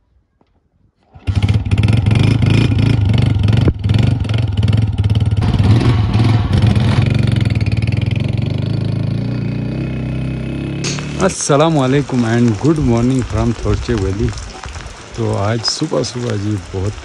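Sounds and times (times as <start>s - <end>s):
motorcycle kick-started: 1.0s - 4.5s
motorcycle engine running: 1.1s - 11.4s.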